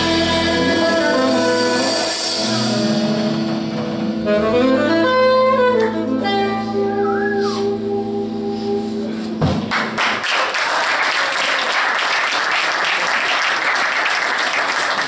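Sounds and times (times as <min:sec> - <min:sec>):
jazz band held chord: 0:00.0 - 0:10.2
audience applauding: 0:09.7 - 0:15.0.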